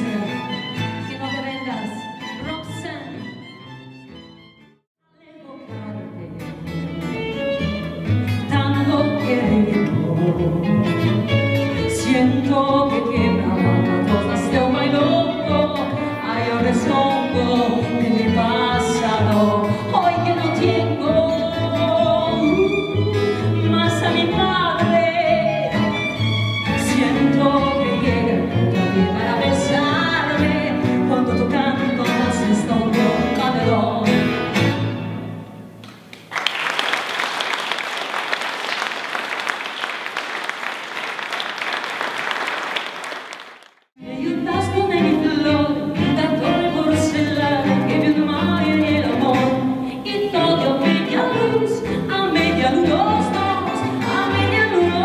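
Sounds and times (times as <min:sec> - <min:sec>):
tango ensemble playing: 0:05.8 - 0:35.8, 0:44.0 - 0:55.0
woman singing: 0:08.4 - 0:25.8, 0:26.8 - 0:34.3, 0:44.0 - 0:55.0
audience applause: 0:36.1 - 0:43.9.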